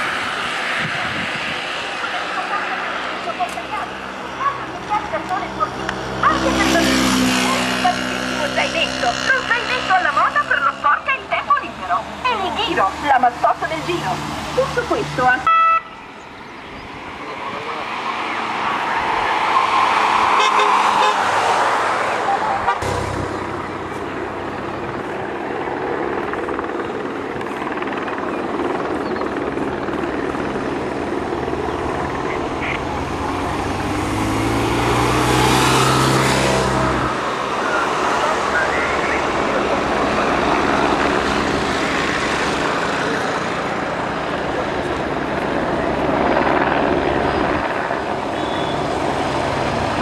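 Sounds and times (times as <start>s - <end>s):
police car passing: 0.0s - 27.3s, 29.5s - 50.0s
motorcycles passing: 0.0s - 50.0s.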